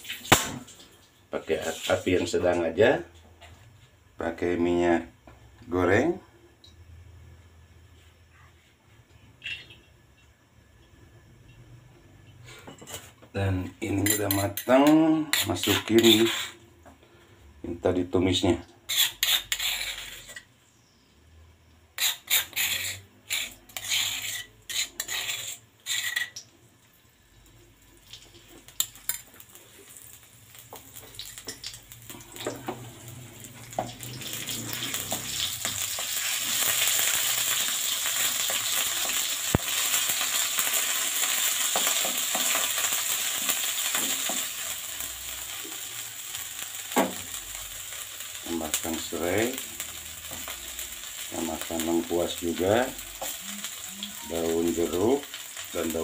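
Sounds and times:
paste sizzling in hot oil: 0.0 - 2.3, 13.8 - 16.7, 18.9 - 20.5, 21.9 - 56.0
spoon scraping stone mortar: 13.9 - 16.6, 18.9 - 20.5, 22.0 - 26.4
wooden spatula stirring: 22.0 - 26.4.

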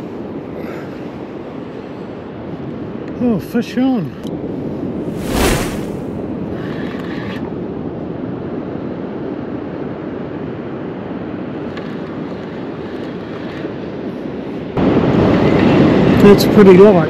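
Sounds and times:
breaking surf: 5.1 - 6.2.

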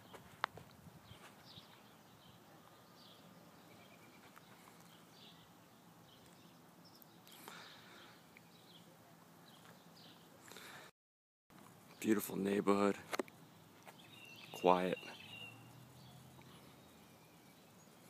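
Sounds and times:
faint street ambience: 0.0 - 10.9, 11.5 - 18.0
faint bird chirps: 1.1 - 10.7, 13.9 - 18.0.

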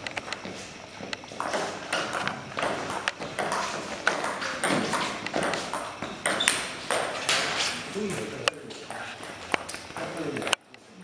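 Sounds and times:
table tennis ball hits: 1.3 - 8.2.

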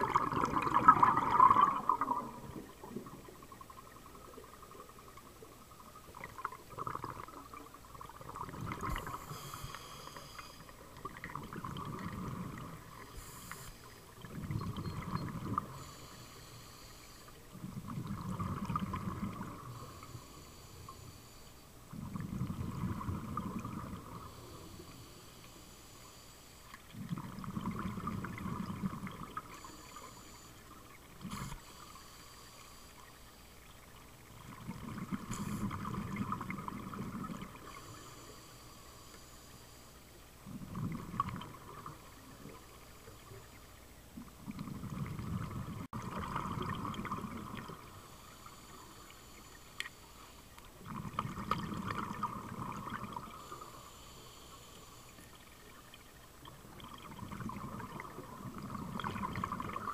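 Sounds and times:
regulator exhaled bubbles: 0.0 - 3.6, 6.2 - 16.1, 17.5 - 20.9, 34.3 - 38.2
faint hissing: 0.0 - 59.9.

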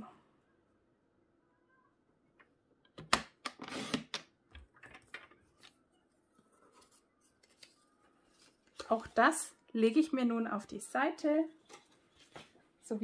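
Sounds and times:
paper rustling: 6.4 - 9.4.

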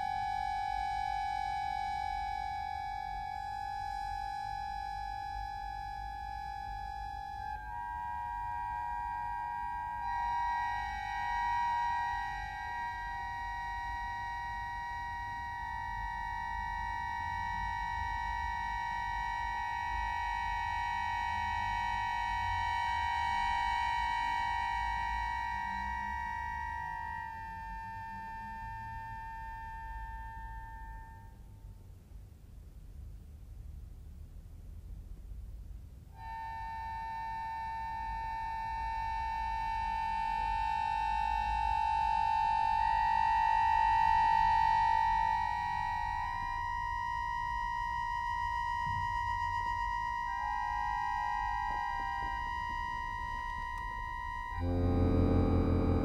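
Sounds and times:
accordion sustained reed tones: 0.0 - 31.5, 36.1 - 56.0
accordion sustained chord: 7.1 - 19.2, 53.8 - 56.0.

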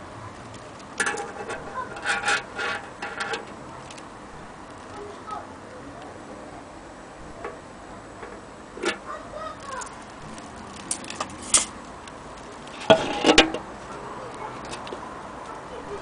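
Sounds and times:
handling clicks and knocks: 0.4 - 4.9.

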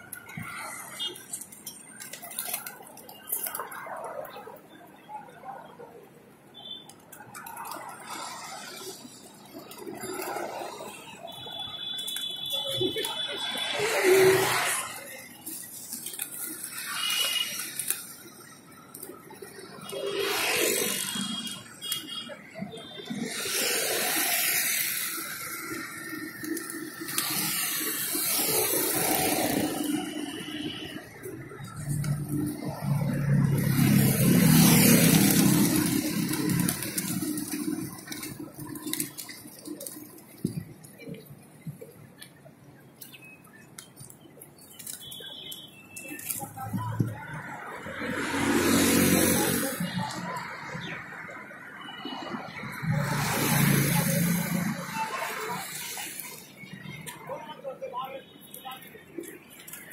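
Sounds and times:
pigeon wings clattering: 0.1 - 3.7, 6.8 - 8.1, 14.4 - 19.9, 33.5 - 42.3, 43.0 - 47.1, 59.2 - 59.9.

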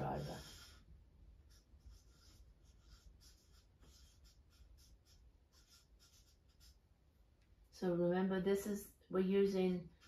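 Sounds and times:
marker pen squeaking on paper: 0.0 - 6.8.

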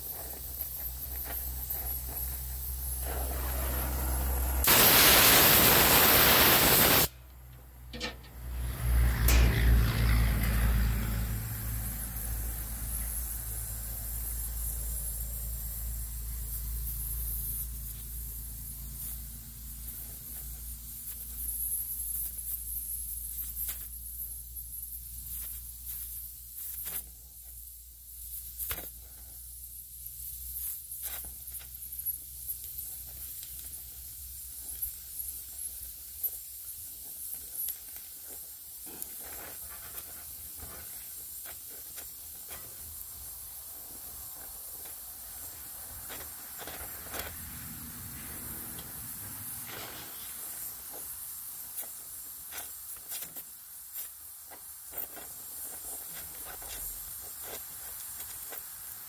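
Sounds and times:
welding torch hissing: 0.0 - 59.0
crackles and pops of molten metal: 7.9 - 8.3, 30.7 - 47.4.

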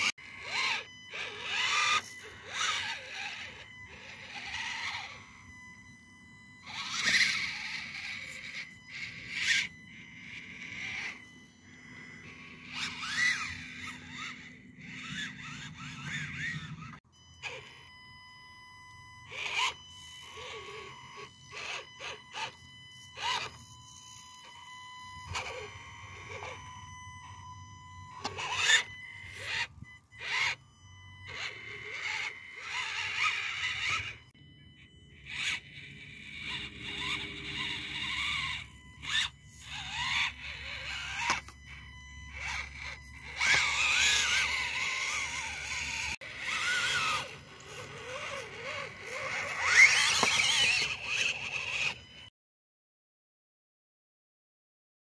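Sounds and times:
small electric motor whining: 0.0 - 52.3
tyres scraping on rock: 43.4 - 51.9.

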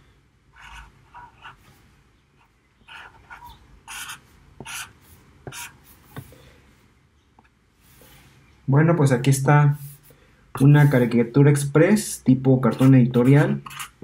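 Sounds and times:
marker drawing on paper: 0.6 - 1.7, 2.4 - 6.3, 9.7 - 11.2, 12.7 - 14.0.

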